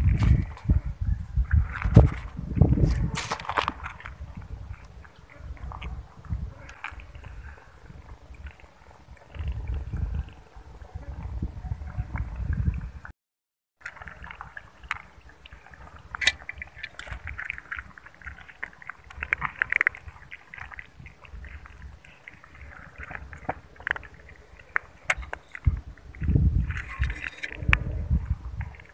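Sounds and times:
kitten lapping milk: 0:13.9 - 0:28.9.

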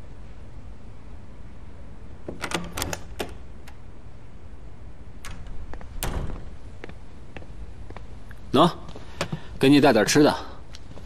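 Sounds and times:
sharp clicks and knocks: 0:02.3 - 0:03.8.

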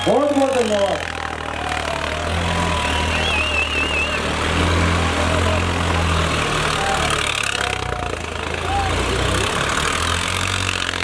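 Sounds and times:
tractor diesel engine running: 0:00.0 - 0:11.0
warbling whistle: 0:02.6 - 0:04.3.

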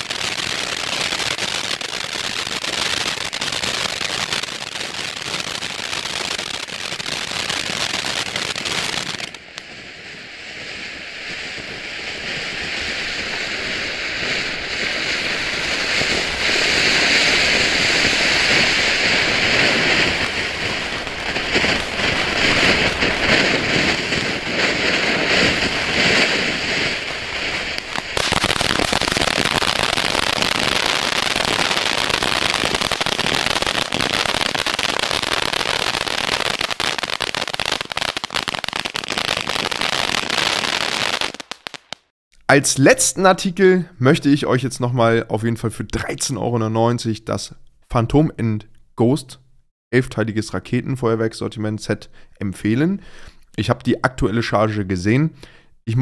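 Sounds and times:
firework fountain hissing and crackling: 0:00.0 - 0:42.1.

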